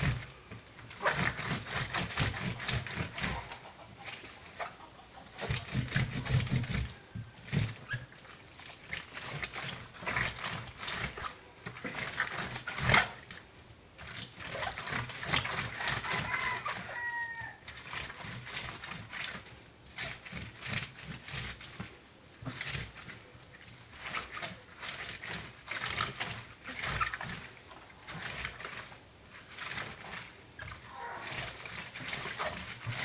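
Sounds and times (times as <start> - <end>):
wet paper scrubbed on washboard: 0.0 - 33.0
faint animal call: 30.8 - 32.6.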